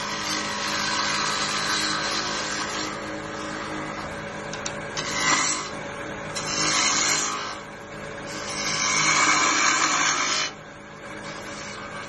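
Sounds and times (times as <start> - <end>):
turning tool scraping wood: 0.0 - 12.0
wood lathe humming: 0.0 - 12.0.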